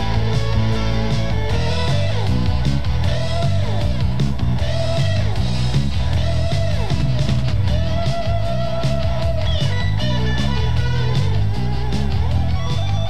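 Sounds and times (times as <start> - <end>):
bass line: 0.0 - 13.0
electric guitar sliding notes: 0.0 - 13.0.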